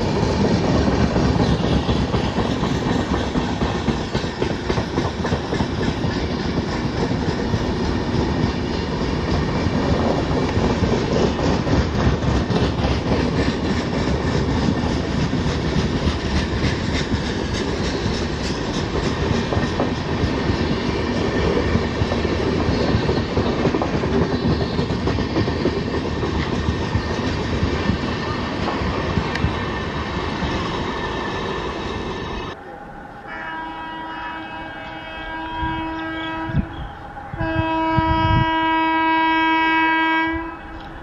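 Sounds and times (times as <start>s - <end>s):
train wheels clattering on rail: 0.0s - 32.5s
locomotive horn blasts: 33.3s - 41.0s.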